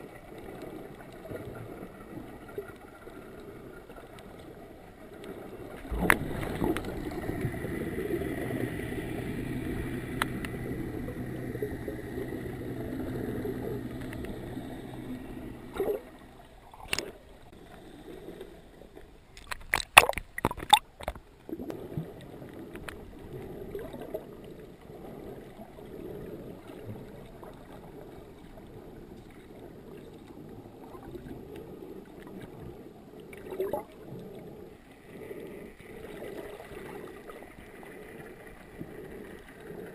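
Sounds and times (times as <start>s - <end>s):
underwater boat engine drone: 0.0s - 19.0s, 21.5s - 39.9s
underwater wash: 0.0s - 39.9s
sharp splashes and knocks: 19.4s - 21.2s.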